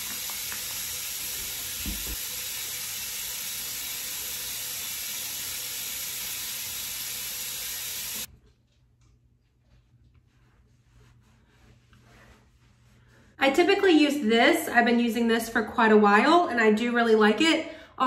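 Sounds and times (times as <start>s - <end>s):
sink tap running: 0.0s - 8.3s.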